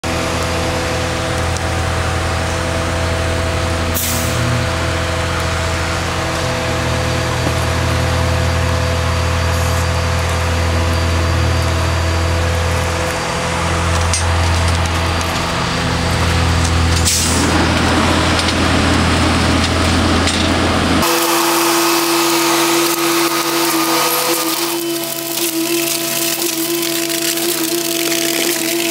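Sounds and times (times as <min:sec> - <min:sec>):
concrete pump engine drone: 0:00.0 - 0:28.9
concrete rushing through hose: 0:21.0 - 0:28.9.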